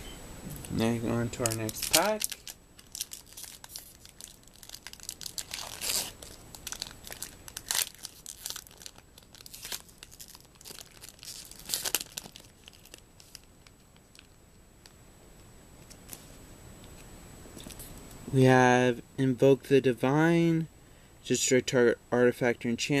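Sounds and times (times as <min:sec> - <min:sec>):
foil wrapper crinkling: 0:01.3 - 0:14.4
foil wrapper ripping: 0:01.4 - 0:13.5.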